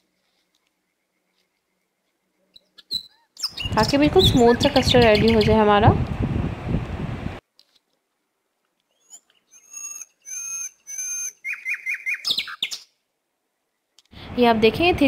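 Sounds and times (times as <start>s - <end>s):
bird calling: 0.2s - 5.8s, 8.9s - 13.0s.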